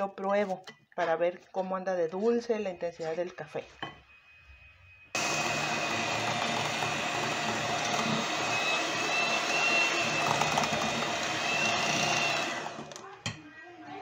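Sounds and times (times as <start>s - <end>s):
beaters whipping batter in glass bowl: 5.2s - 13.1s
electric hand mixer whirring: 5.2s - 13.1s.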